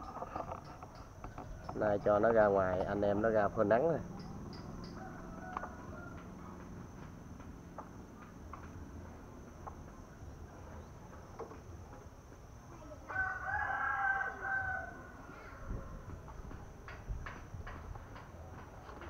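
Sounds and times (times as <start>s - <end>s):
rooster crowing: 4.6s - 6.6s, 13.1s - 16.2s.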